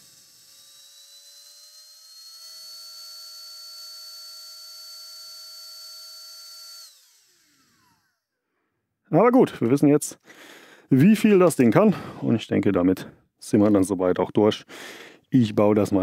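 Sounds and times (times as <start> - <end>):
handheld vacuum whining: 0.0 - 8.4.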